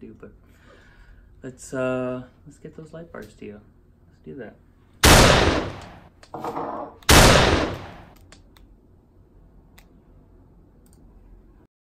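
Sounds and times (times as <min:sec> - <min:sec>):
faint low hum: 0:00.0 - 0:11.7
loud blast sound effect: 0:05.0 - 0:05.8, 0:07.1 - 0:08.1.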